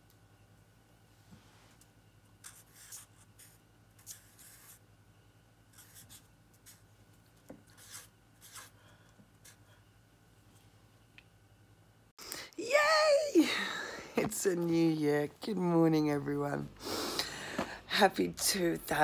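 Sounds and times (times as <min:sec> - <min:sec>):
steady low hum: 0:00.0 - 0:12.6
marker scratching on paper: 0:02.4 - 0:04.8, 0:05.7 - 0:06.9, 0:07.6 - 0:08.8.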